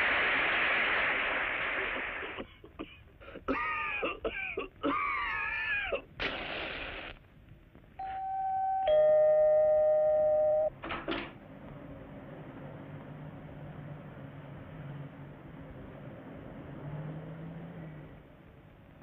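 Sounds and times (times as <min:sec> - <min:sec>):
two-note doorbell chime: 0:08.0 - 0:10.7.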